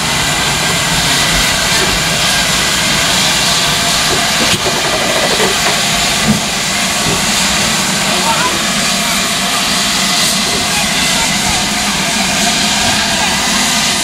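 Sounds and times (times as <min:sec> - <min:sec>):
steam locomotive hissing: 0:00.0 - 0:14.0.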